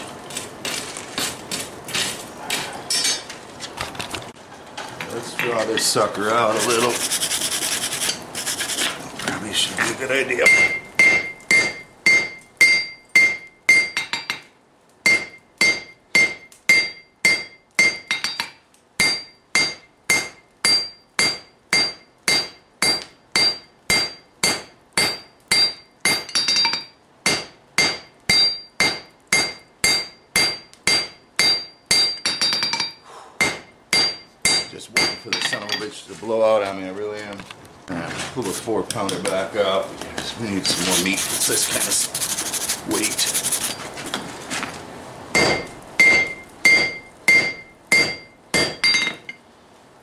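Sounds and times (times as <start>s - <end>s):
hammer striking steel on anvil: 10.4s - 35.9s, 45.4s - 49.4s.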